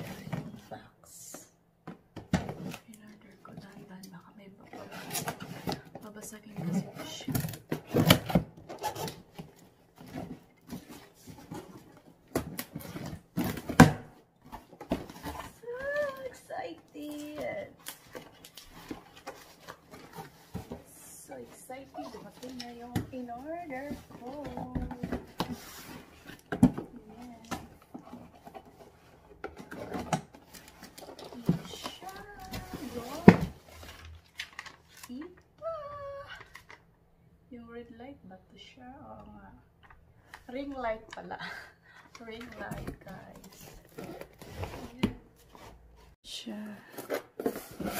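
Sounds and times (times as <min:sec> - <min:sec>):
cardboard box scraping and rustling: 0:18.9 - 0:34.1, 0:42.6 - 0:46.2, 0:47.0 - 0:47.9.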